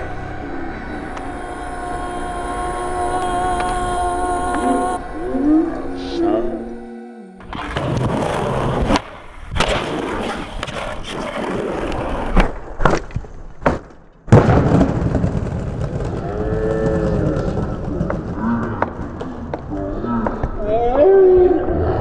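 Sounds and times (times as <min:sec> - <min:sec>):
skateboard slamming: 0:07.5 - 0:19.6
skateboard wheels rolling on stone: 0:07.5 - 0:20.6
skateboard clacks: 0:15.2 - 0:20.7.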